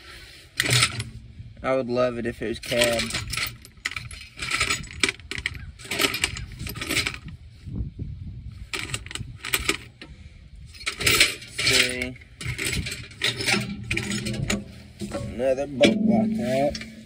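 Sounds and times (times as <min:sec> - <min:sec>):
metal bolts clinking: 0:00.6 - 0:01.3, 0:02.6 - 0:07.3, 0:10.8 - 0:17.0.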